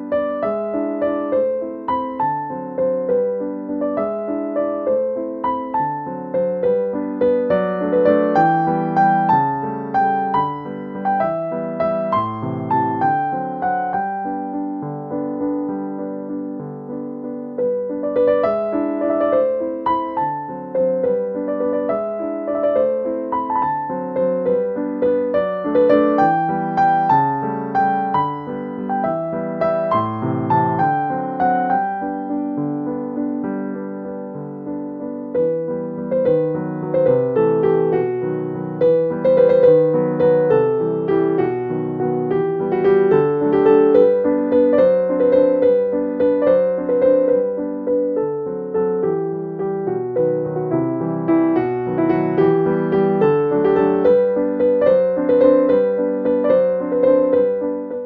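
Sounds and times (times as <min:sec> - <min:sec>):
gentle piano music: 0:00.0 - 0:58.0.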